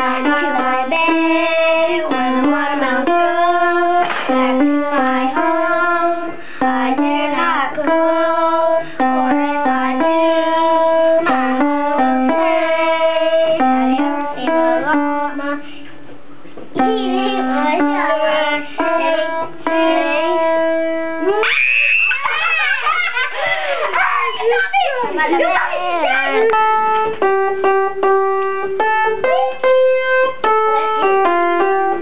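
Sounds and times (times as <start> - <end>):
child singing: 0.0 - 15.6, 16.8 - 21.3
upright piano playing: 0.0 - 15.6, 16.8 - 21.4, 23.9 - 32.0.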